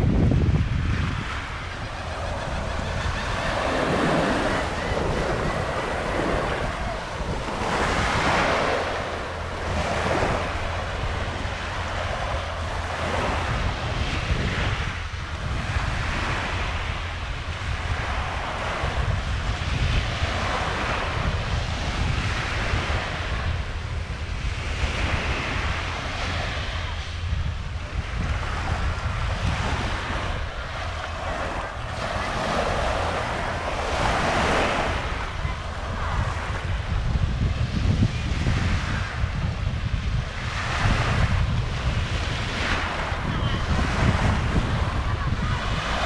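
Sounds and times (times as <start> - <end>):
small waves washing on beach: 0.0 - 46.0
wind rumble on microphone: 0.0 - 46.0.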